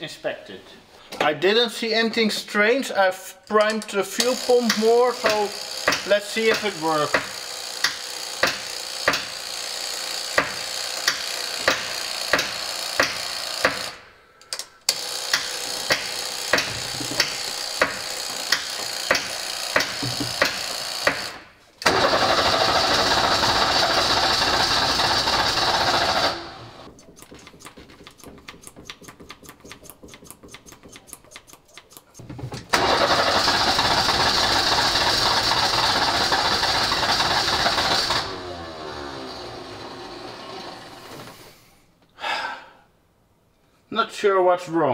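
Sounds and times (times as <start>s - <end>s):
diesel engine cranking on starter: 21.8s - 26.9s, 32.7s - 41.4s.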